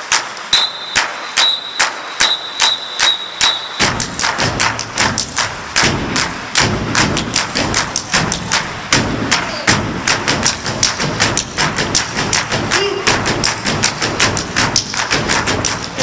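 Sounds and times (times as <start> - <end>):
hand claps and slaps: 0.0 - 16.0
stomps on a stage floor: 3.8 - 16.0.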